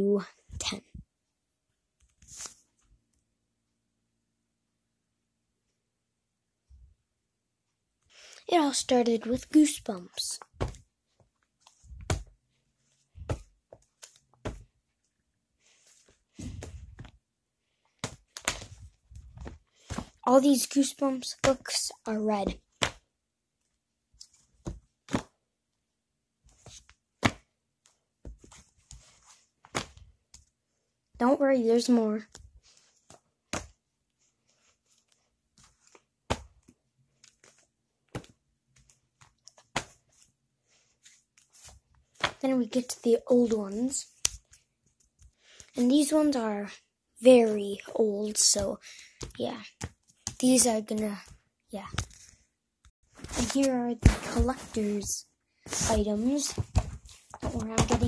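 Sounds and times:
book covers sliding and rustling: 2.1 - 2.8, 8.8 - 14.8, 15.7 - 17.2, 17.8 - 21.8, 26.5 - 27.5, 28.2 - 30.5, 32.2 - 42.4, 53.1 - 58.0
books thudding on a bedspread: 10.5 - 10.9, 14.4 - 14.7, 53.2 - 54.8, 55.7 - 58.0.

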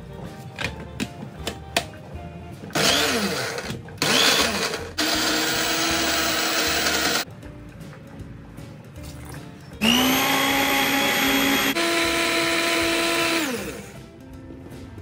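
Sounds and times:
electric blender running: 2.8 - 7.2, 9.8 - 14.0.

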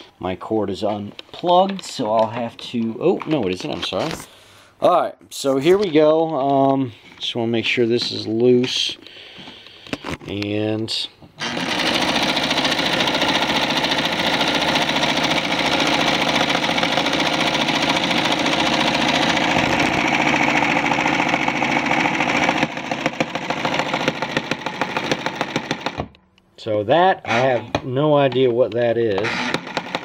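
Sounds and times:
sewing machine clattering: 11.4 - 26.0, 29.3 - 30.0.

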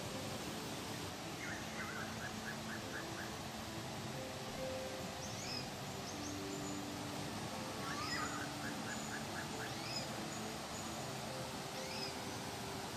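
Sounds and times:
mountain stream rushing: 0.0 - 12.9
bird trill: 7.8 - 10.5, 11.8 - 12.2.

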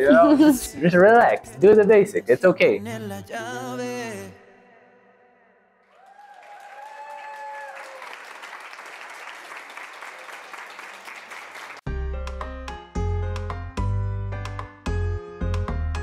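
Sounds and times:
long whoop: 5.9 - 8.2
crowd clapping and cheering: 5.9 - 12.4.

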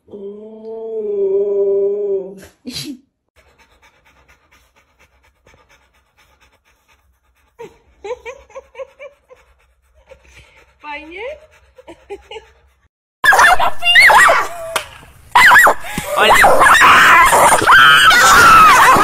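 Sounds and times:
dog panting: 3.4 - 12.9
dog howling: 13.3 - 14.8, 15.4 - 19.0.

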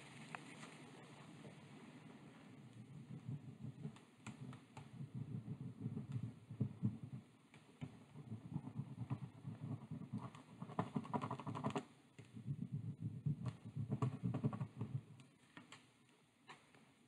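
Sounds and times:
fingers rubbing wooden sticks: 2.9 - 15.7.

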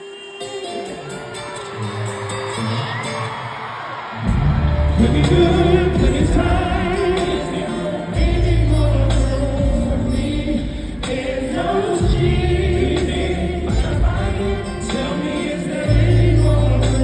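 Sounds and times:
voices singing like a choir: 0.0 - 17.0
live band with deep bass: 4.2 - 17.0.

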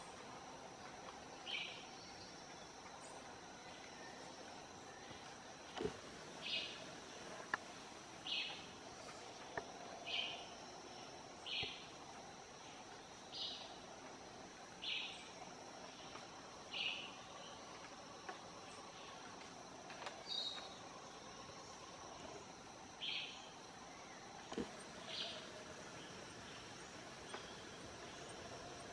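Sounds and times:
high insect drone: 0.0 - 28.9
faint clicks: 7.4 - 7.7.

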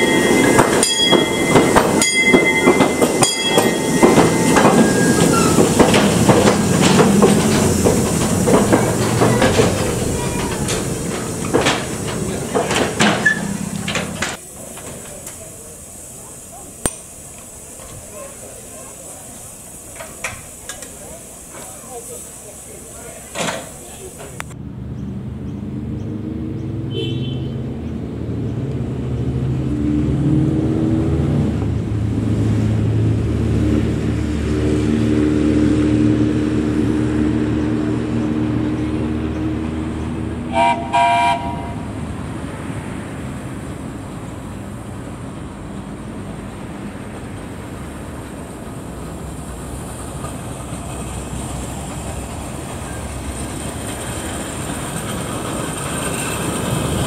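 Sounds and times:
steam train rumbling: 0.0 - 57.0
train whistle toots: 40.5 - 41.9.

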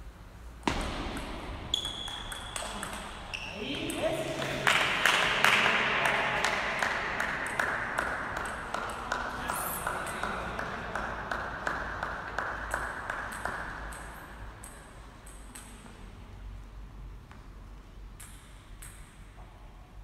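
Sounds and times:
table tennis balls knocking: 0.7 - 3.4, 7.2 - 15.8.

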